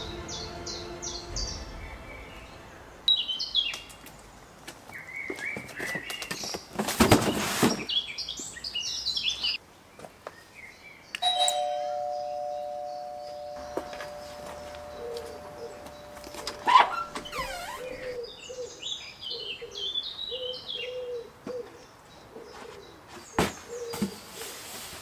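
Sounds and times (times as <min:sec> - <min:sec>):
loud rush of noise: 0:00.0 - 0:03.3
birds chirping: 0:00.0 - 0:24.3
two-note chime: 0:11.2 - 0:16.7.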